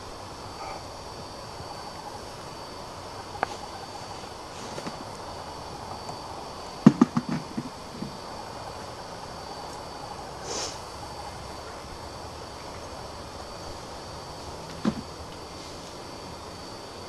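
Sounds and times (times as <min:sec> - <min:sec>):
night-time hiss: 0:00.0 - 0:17.0
soft footsteps in grass: 0:03.3 - 0:05.2.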